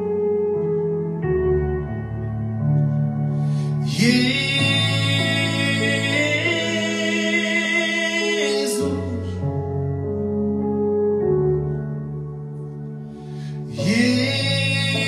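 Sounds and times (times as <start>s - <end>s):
sustained keyboard chords: 0.0s - 15.0s.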